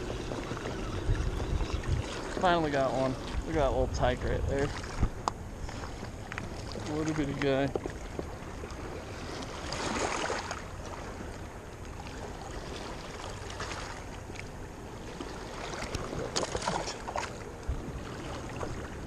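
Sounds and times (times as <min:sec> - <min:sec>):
wind on microphone: 0:00.0 - 0:11.4
waves lapping on rocks: 0:00.0 - 0:19.0.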